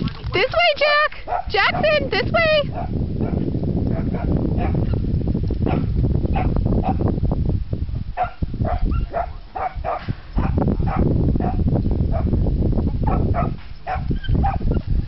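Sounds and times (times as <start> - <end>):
dog barking: 1.3 - 2.0, 2.7 - 5.0, 5.6 - 7.0, 8.2 - 12.3, 13.0 - 14.7.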